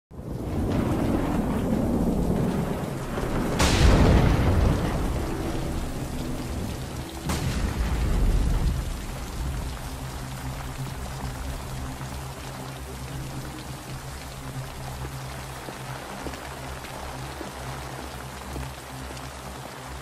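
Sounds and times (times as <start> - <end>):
thunderclaps: 0.1 - 16.0
heavy rain falling: 0.1 - 20.0.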